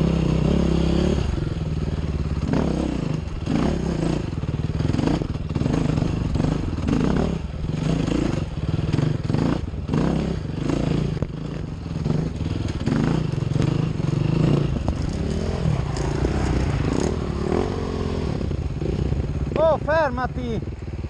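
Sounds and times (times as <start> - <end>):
motorcycle engine revving: 0.0 - 21.0
stones clattering and scraping: 14.8 - 16.6.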